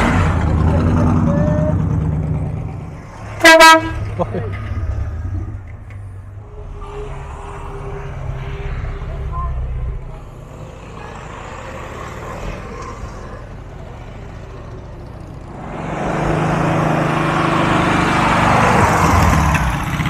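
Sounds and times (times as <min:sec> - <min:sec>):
car engine rumble: 0:00.0 - 0:20.0
motor trike passing: 0:10.7 - 0:20.0.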